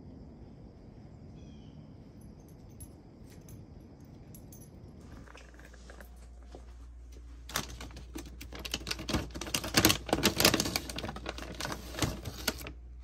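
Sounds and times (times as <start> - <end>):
plastic bag crinkling: 7.4 - 12.8.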